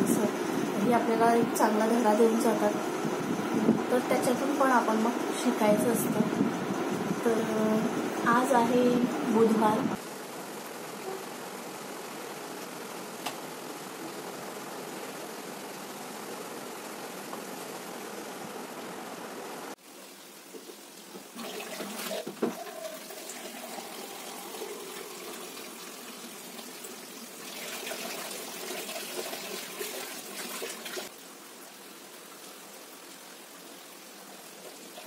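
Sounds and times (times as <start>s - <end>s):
water running from tap: 21.1s - 31.1s.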